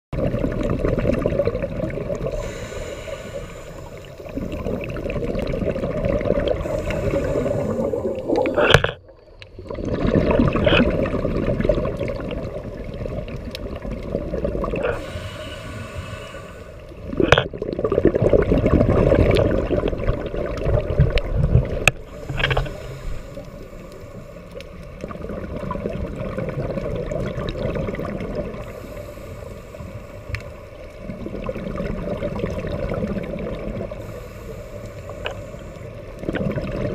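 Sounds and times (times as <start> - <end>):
rumble of exhaled bubbles: 0.1 - 29.0, 30.4 - 34.2, 35.1 - 36.9
regulator hiss on inhale: 2.2 - 4.9, 6.5 - 8.8, 14.8 - 17.1, 22.0 - 25.0, 28.6 - 31.0, 33.9 - 36.2.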